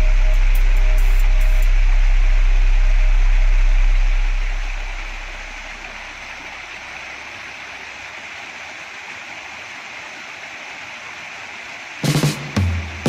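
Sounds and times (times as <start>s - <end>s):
water splashing down a cascade: 5.4s - 13.0s.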